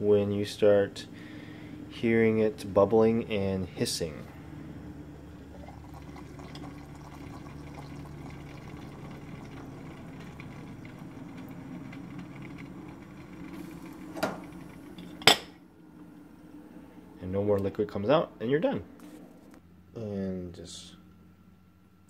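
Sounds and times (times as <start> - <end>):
moka pot bubbling and hissing: 0.0 - 15.4.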